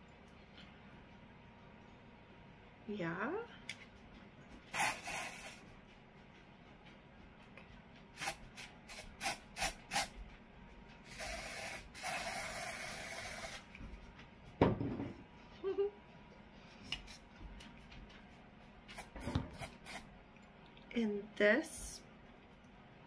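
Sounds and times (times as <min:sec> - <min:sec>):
aerosol can spraying: 0:04.7 - 0:05.6, 0:08.2 - 0:10.1, 0:11.1 - 0:13.6, 0:19.0 - 0:20.0.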